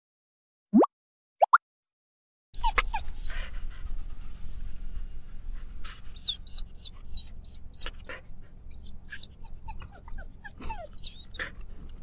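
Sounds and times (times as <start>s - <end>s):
dog whimpering: 2.6s - 3.6s, 5.9s - 12.0s.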